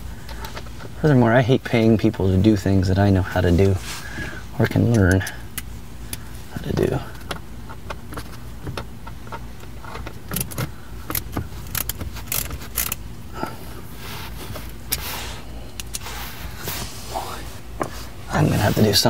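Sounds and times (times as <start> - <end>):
steady low hum: 0.0 - 19.0
handling rustle: 6.2 - 19.0.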